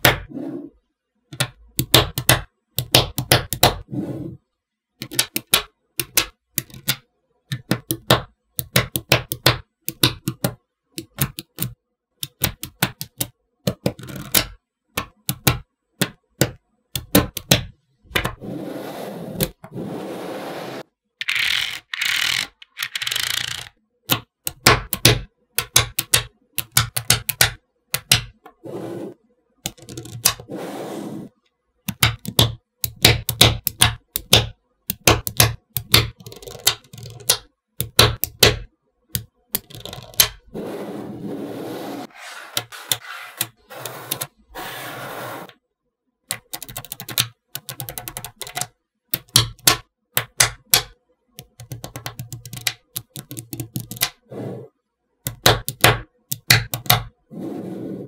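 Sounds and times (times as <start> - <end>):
magnetic balls clicking together: 1.3 - 3.8, 5.0 - 18.3, 21.2 - 28.5, 29.6 - 30.4, 31.9 - 40.4, 46.3 - 54.2, 55.3 - 57.1.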